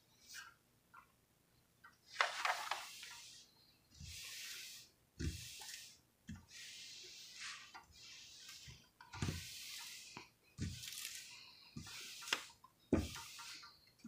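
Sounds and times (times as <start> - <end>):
hands rustling on plastic film: 8.3 - 13.7.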